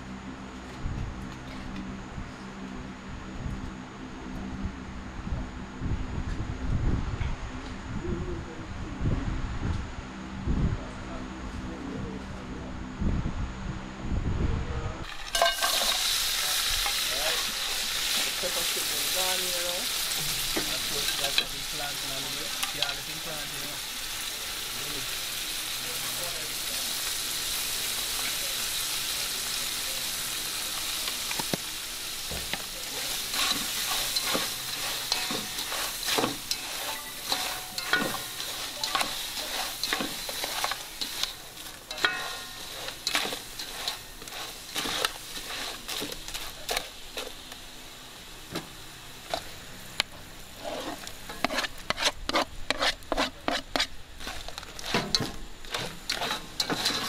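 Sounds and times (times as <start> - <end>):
shrimp sizzling in a pot: 15.0 - 57.0
metal spatula scraping a pot: 15.1 - 18.4, 32.9 - 46.9, 50.6 - 57.0.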